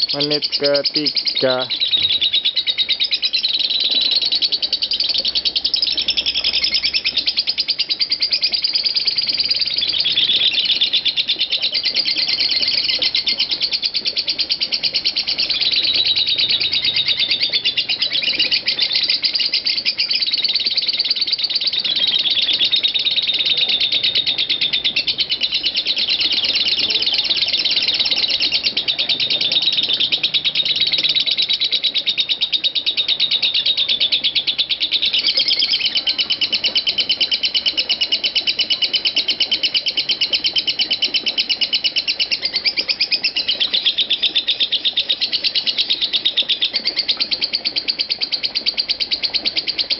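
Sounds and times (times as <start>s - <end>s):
lovebird chattering trill: 0.0s - 49.9s.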